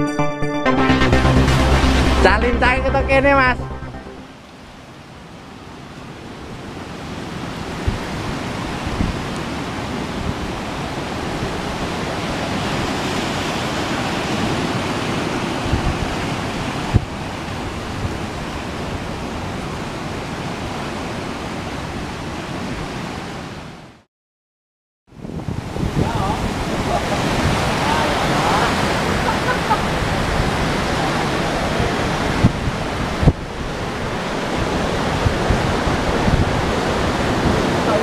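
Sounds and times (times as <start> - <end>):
surf on rocks: 4.4 - 23.8, 25.3 - 38.0
wind on microphone: 14.1 - 20.0, 25.1 - 38.0.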